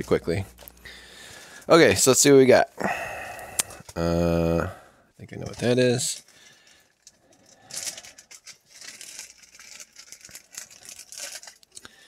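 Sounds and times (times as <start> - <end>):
plastic bags crinkling: 5.4 - 12.0.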